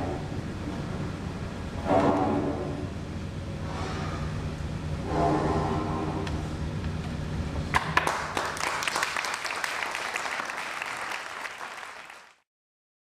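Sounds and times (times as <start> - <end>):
low steady drone: 0.0 - 7.7
audience applause: 7.8 - 12.4.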